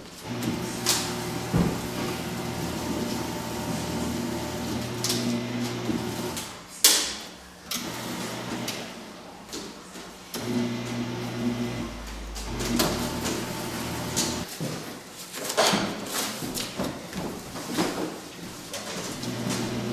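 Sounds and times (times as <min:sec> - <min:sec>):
paper shredder motor running: 0:00.2 - 0:06.5, 0:07.8 - 0:08.8, 0:10.4 - 0:14.5, 0:19.2 - 0:19.9.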